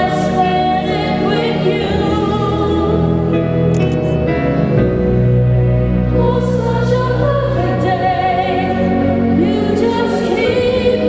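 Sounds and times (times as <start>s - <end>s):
children's choir singing: 0.0s - 3.3s, 6.1s - 11.0s.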